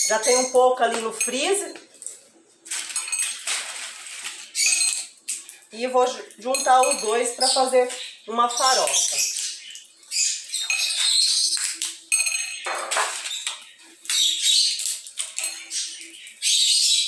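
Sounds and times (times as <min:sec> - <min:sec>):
dry bean pods crackling: 0:00.1 - 0:09.6.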